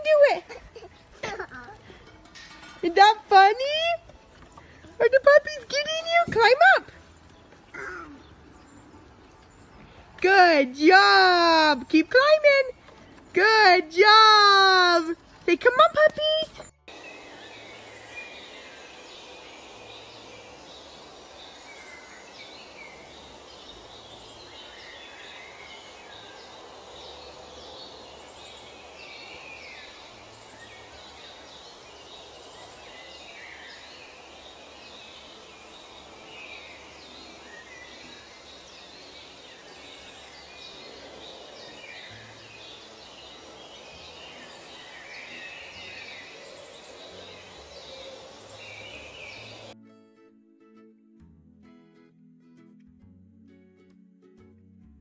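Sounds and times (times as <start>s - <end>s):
small birds chirping and singing: 0.0s - 49.8s
steady background hiss: 16.9s - 49.8s.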